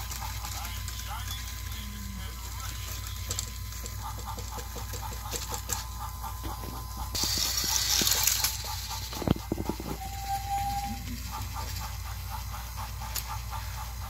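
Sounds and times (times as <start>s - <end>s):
toy train motors humming and clicking: 0.0s - 14.0s.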